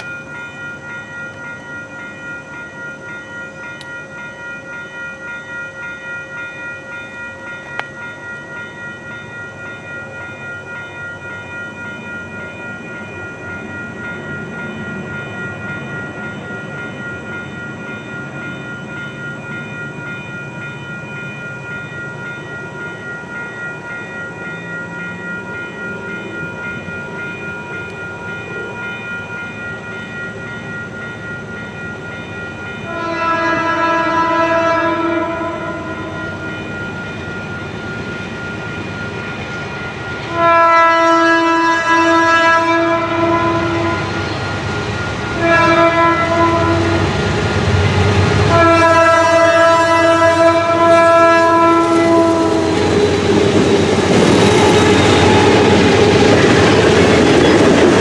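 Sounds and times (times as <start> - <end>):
pulsing ringing tones: 0.0 - 58.0
train rumble: 42.0 - 58.0.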